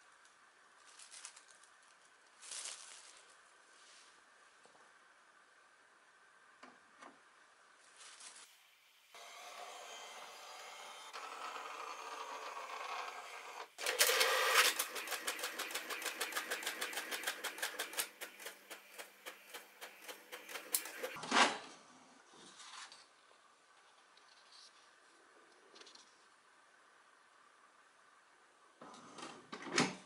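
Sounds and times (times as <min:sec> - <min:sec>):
paper feeding out whirr: 0:09.2 - 0:21.2
printer motor whir: 0:09.2 - 0:21.2
print carriage rattling: 0:13.8 - 0:21.2.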